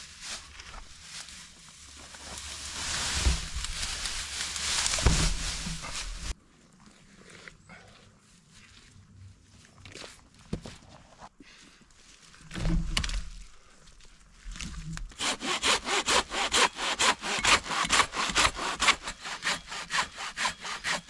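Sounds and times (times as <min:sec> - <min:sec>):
dull thumps: 0:04.8 - 0:06.3.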